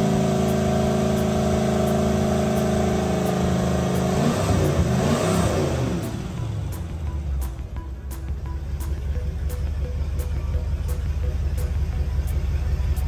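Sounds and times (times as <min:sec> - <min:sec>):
boat engine at high revs: 0:00.0 - 0:06.2.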